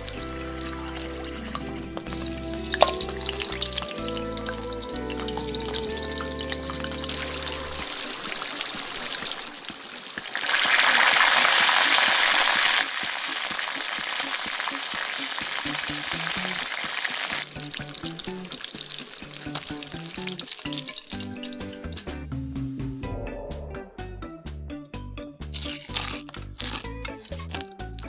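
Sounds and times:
food deep-frying in oil: 0.0s - 22.1s
soft background music: 0.0s - 28.0s.

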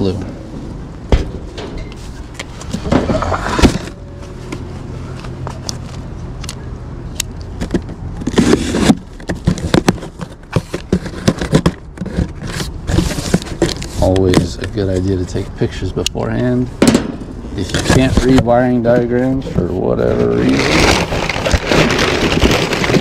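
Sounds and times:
cardboard scraping and rustling: 1.4s - 6.1s, 7.5s - 15.5s, 17.5s - 23.0s.

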